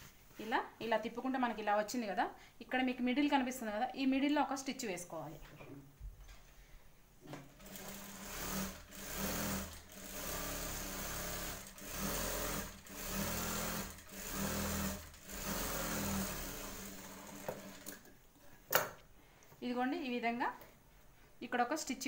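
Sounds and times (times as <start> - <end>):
industrial sewing machine stitching: 7.6 - 18.0.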